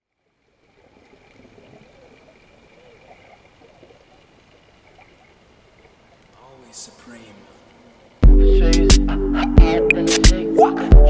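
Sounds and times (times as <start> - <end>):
underwater water wash: 0.3 - 6.4
gurgling bubbles: 0.6 - 6.0.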